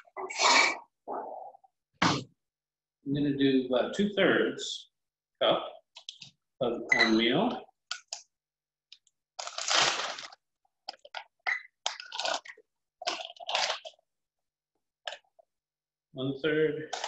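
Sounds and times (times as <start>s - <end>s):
paper bag crinkling: 9.4s - 10.4s.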